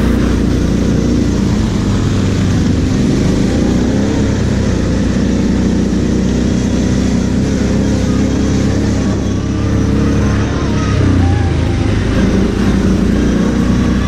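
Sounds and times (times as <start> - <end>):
quad bike engine running: 0.0 - 14.0.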